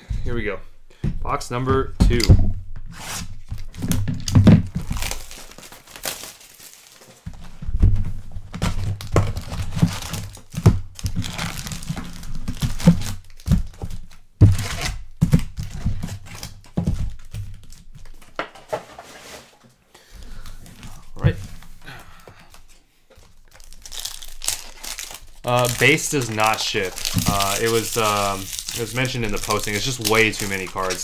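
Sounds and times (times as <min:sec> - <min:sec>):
wrapper crinkling and tearing: 0:03.4 - 0:07.3, 0:08.6 - 0:18.4, 0:22.6 - 0:31.0.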